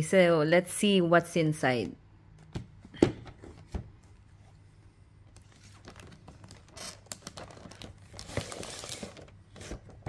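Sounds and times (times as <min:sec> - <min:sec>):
cardboard and plastic crinkling: 0:05.3 - 0:10.0.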